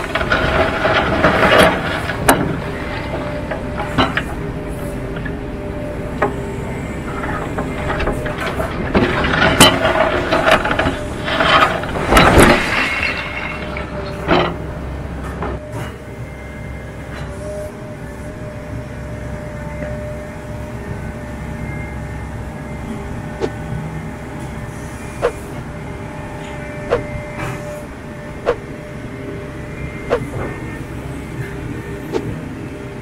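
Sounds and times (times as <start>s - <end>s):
excavator engine and hydraulics hum: 0.0s - 33.0s
concrete cracking and crunching: 7.9s - 14.6s.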